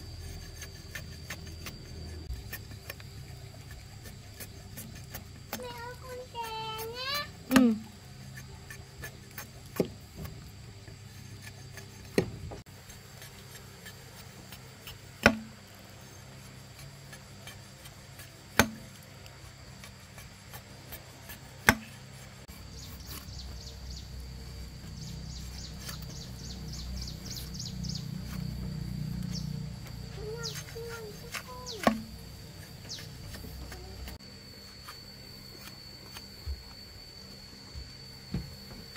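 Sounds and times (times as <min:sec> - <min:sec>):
tool striking wood: 0:11.5 - 0:12.6, 0:15.2 - 0:15.6, 0:18.5 - 0:18.8, 0:21.6 - 0:22.0, 0:30.3 - 0:32.2.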